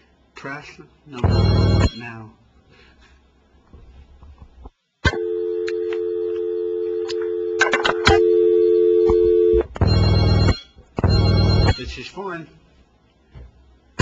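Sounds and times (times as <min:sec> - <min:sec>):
telephone ringing: 0:01.2 - 0:02.1, 0:05.1 - 0:11.9
telephone dial tone: 0:05.1 - 0:10.5.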